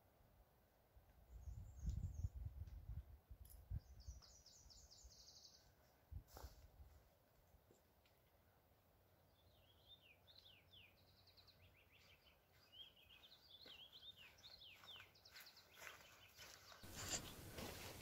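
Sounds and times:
songbird chirping: 0:01.0 - 0:06.0, 0:07.4 - 0:18.0
soft footsteps: 0:12.0 - 0:18.0.

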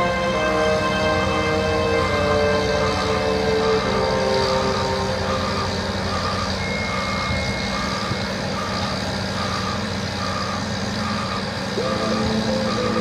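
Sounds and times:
diesel engine humming: 0:00.0 - 0:13.0
high thin tone: 0:01.0 - 0:08.7, 0:11.8 - 0:13.0
motion alarm beeping: 0:03.4 - 0:13.0.

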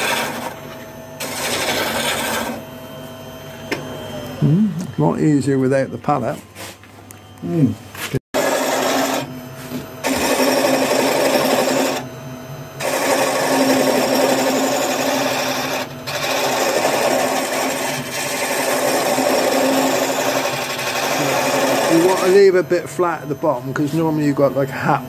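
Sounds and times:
lathe tool cutting wood: 0:00.0 - 0:02.6, 0:08.4 - 0:12.1, 0:12.8 - 0:25.0
lathe motor hum: 0:00.0 - 0:06.4, 0:08.4 - 0:12.1, 0:12.7 - 0:25.0.

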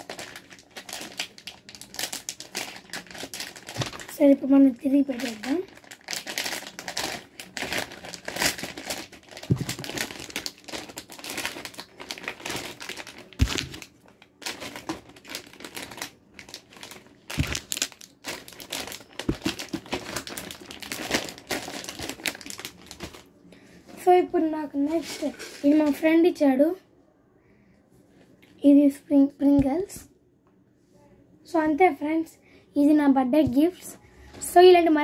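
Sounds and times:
plastic packaging crinkling: 0:00.0 - 0:23.3, 0:24.8 - 0:26.0.

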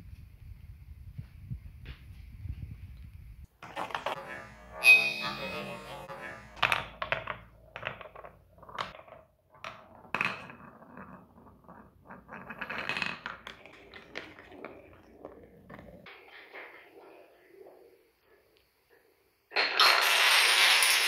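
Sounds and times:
ball clacking and knocking: 0:03.6 - 0:17.8
ball rolling on wooden track: 0:03.6 - 0:18.6, 0:19.5 - 0:21.0.

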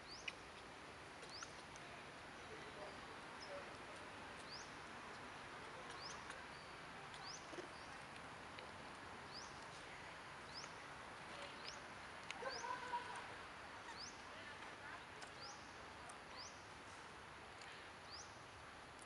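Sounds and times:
bird chirping: 0:00.0 - 0:00.4, 0:04.4 - 0:04.8, 0:13.8 - 0:14.3
faint outdoor hiss: 0:00.0 - 0:19.0.

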